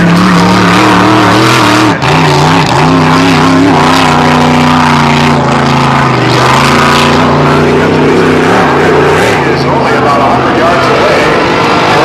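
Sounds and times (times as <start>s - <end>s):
racing boat engine flat out: 0.0s - 12.0s.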